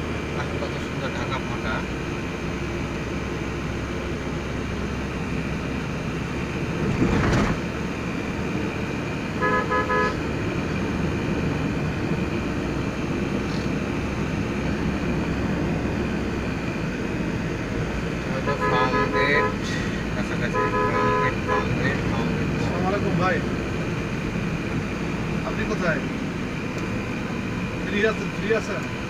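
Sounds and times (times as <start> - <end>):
car road and engine noise: 0.0 - 29.0
car horn toots: 9.4 - 10.2, 18.4 - 19.7, 20.4 - 22.0.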